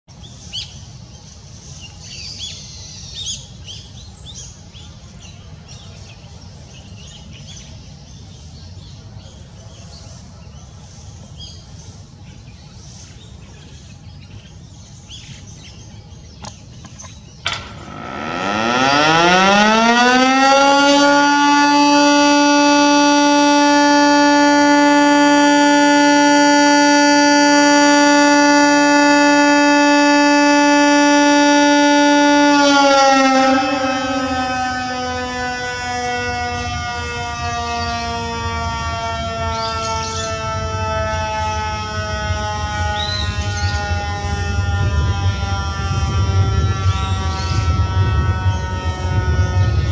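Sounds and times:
birds chirping: 0:00.1 - 0:41.5, 0:42.2 - 0:44.6, 0:45.4 - 0:49.9
siren click: 0:17.4 - 0:20.2
motor siren wailing: 0:17.5 - 0:49.9.

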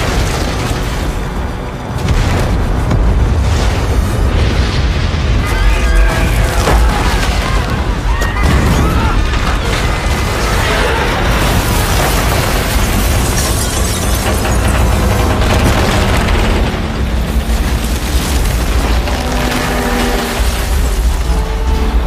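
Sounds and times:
crashing debris: 0:00.0 - 0:22.0
low rumble of collapsing buildings: 0:00.0 - 0:22.0
people screaming: 0:05.3 - 0:12.0.

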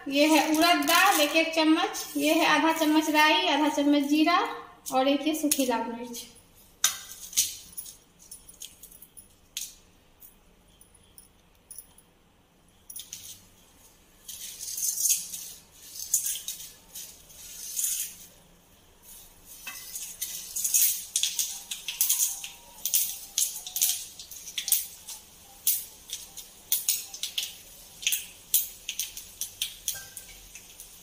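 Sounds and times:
spices sizzling in hot oil: 0:00.0 - 0:05.8, 0:13.1 - 0:31.0
seeds crackling and popping: 0:00.1 - 0:04.2, 0:13.1 - 0:18.4, 0:19.0 - 0:31.0.

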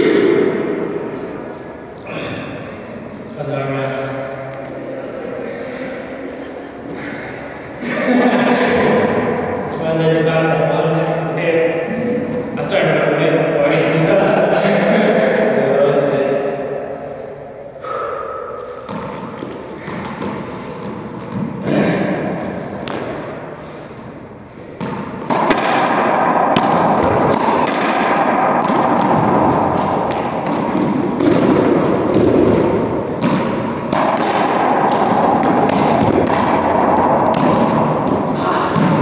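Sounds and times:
dense noisy wash: 0:00.0 - 0:18.4, 0:19.5 - 0:39.0
rubber ball hits: 0:22.8 - 0:23.2, 0:24.8 - 0:39.0.

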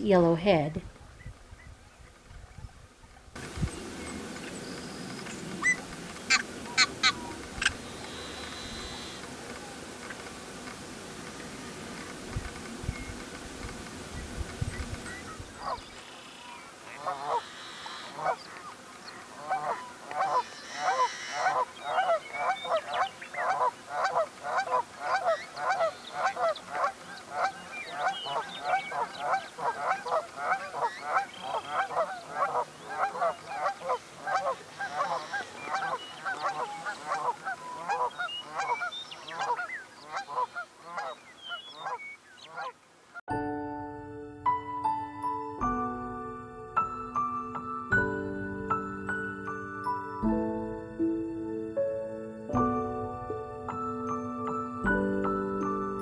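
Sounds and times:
blackbirds calling: 0:03.4 - 0:09.7, 0:14.1 - 0:42.8.

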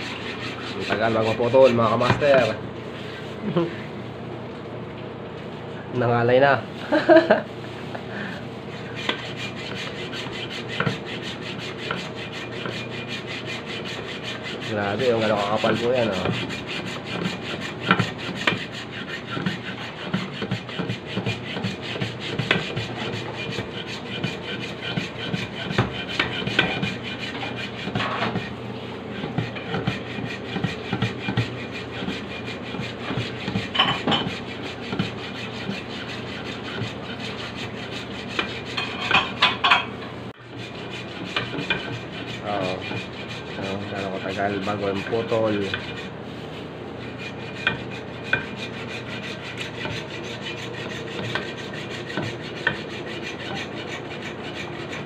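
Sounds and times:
hacksaw sawing: 0:00.0 - 0:02.6, 0:08.7 - 0:39.3, 0:40.4 - 0:46.2, 0:47.0 - 0:55.0.

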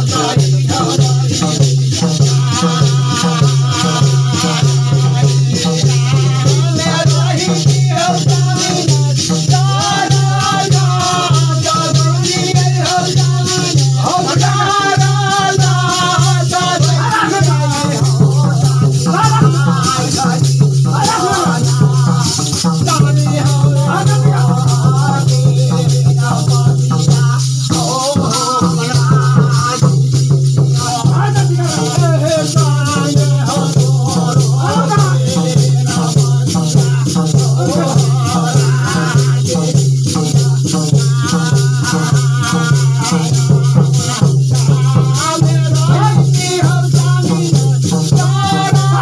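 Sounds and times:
person singing: 0:00.0 - 0:30.0, 0:30.7 - 0:49.0
rattling shaker beat: 0:00.0 - 0:49.0.

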